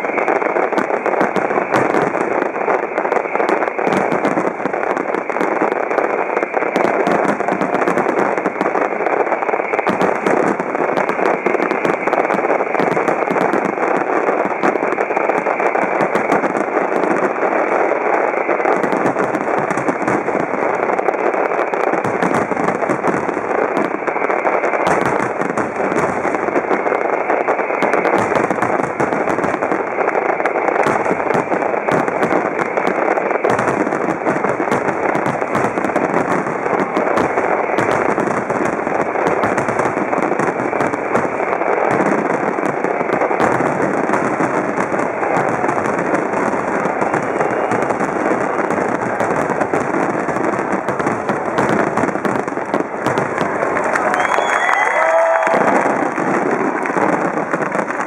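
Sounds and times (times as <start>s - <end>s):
fireworks bursts and crackling: 0.0s - 58.0s.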